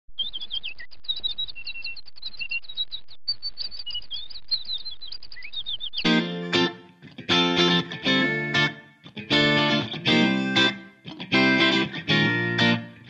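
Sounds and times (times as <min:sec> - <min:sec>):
bird whistles: 0:00.2 - 0:06.1
songbirds chirping: 0:00.2 - 0:06.8.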